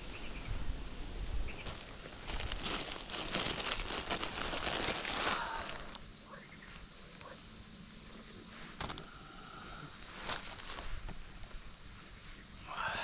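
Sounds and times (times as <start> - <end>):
plastic packaging crinkling: 1.6 - 6.1, 8.8 - 9.1, 10.0 - 11.0.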